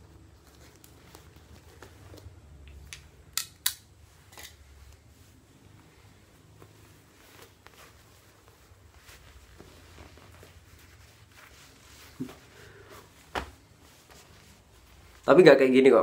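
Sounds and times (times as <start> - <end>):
soft rustles: 0.0 - 3.3, 3.9 - 16.0.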